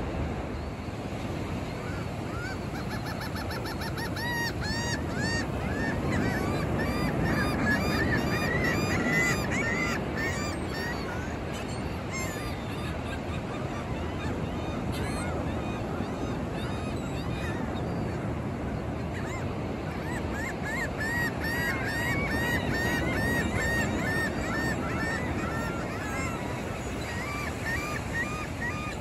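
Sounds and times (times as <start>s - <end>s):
gulls calling: 0.6s - 29.0s.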